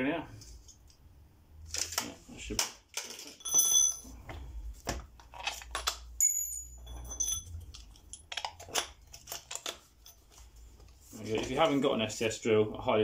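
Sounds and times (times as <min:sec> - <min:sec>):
short high metallic rings: 0:03.4 - 0:04.1, 0:06.2 - 0:07.6.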